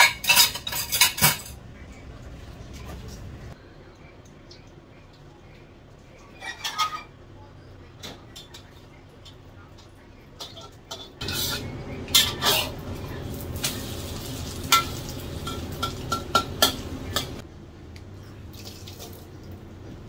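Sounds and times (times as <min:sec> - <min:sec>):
omelet sizzling in oil: 0:11.2 - 0:17.0
metal spatula clanking on wok: 0:14.6 - 0:17.4.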